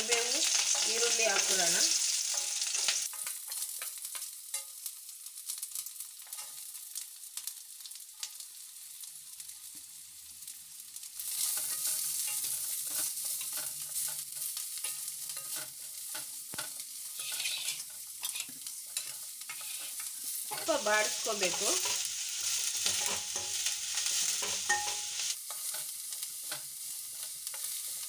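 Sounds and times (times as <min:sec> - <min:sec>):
steel spoon scraping a pan: 0:00.0 - 0:04.8, 0:11.2 - 0:28.0
onions sizzling in hot oil: 0:00.0 - 0:28.0.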